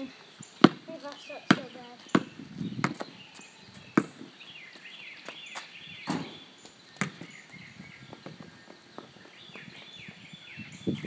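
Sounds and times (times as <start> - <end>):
basketball bouncing on asphalt: 0.6 - 4.3, 7.0 - 7.3.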